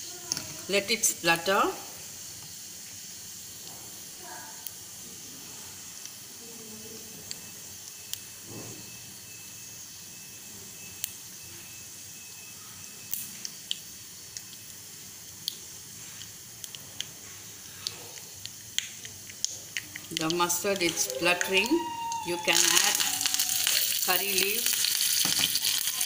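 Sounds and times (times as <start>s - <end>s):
oil sizzling: 0.0s - 6.4s, 13.1s - 26.0s
mustard seeds popping: 17.8s - 26.0s.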